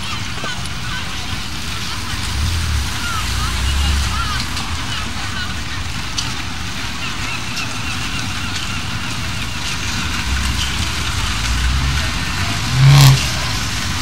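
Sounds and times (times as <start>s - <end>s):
street noise: 0.0s - 14.0s
vehicles rumbling: 0.0s - 14.0s.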